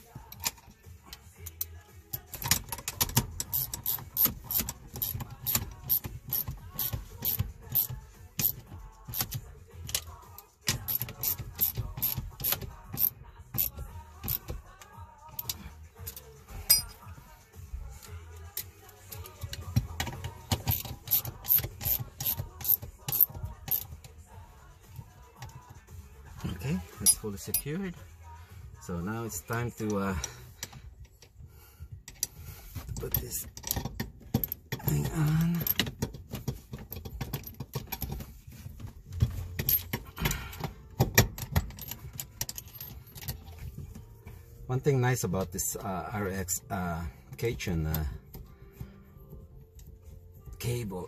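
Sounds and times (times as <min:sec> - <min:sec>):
ratchet wrench clicking: 0:01.4 - 0:10.1, 0:10.7 - 0:14.6, 0:18.5 - 0:24.0.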